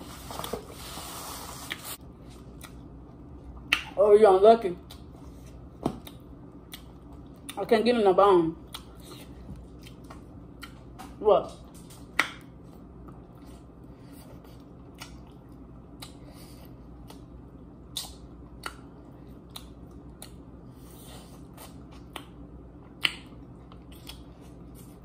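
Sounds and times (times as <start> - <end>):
steady low hum: 0.0 - 25.0
wet mouth clicks and smacks: 17.9 - 18.9, 22.0 - 24.3.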